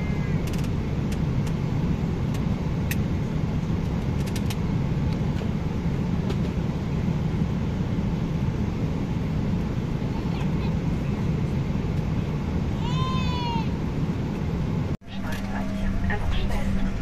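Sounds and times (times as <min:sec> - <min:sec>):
airliner cabin drone: 0:00.0 - 0:17.0.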